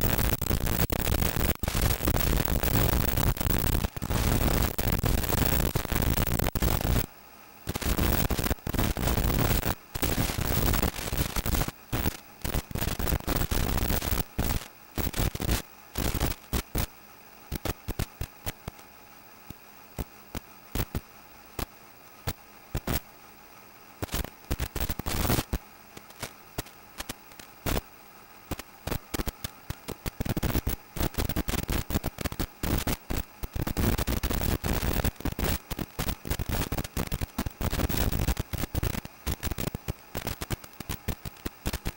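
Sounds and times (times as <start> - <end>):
faint steady hum: 0.0 - 41.9
radio static hissing and crackling: 0.0 - 41.9.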